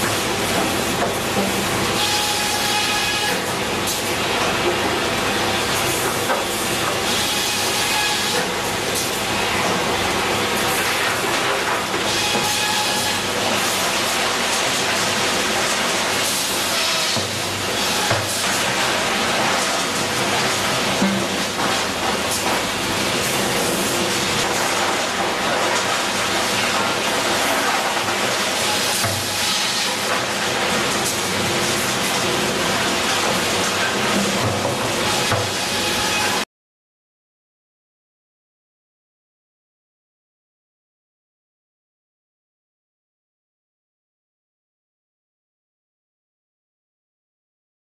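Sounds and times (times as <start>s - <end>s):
sawmill machinery running: 0.0s - 36.4s.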